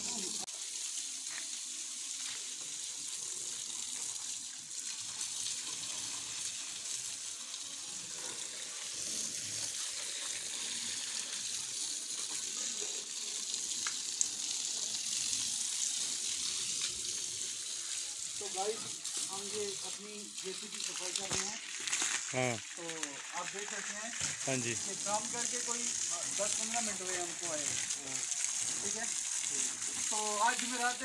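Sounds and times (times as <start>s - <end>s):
hose water spraying on vehicle: 0.0s - 31.0s.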